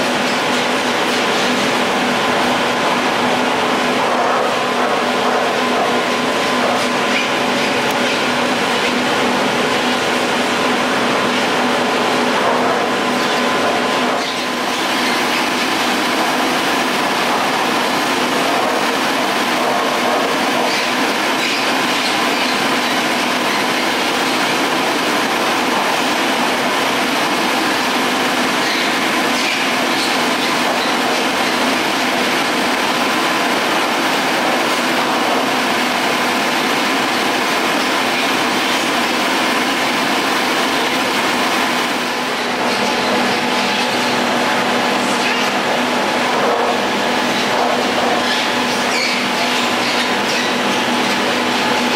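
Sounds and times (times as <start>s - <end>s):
chairlift machinery rolling and rattling: 0.0s - 51.9s
steady machinery hum: 0.0s - 51.9s.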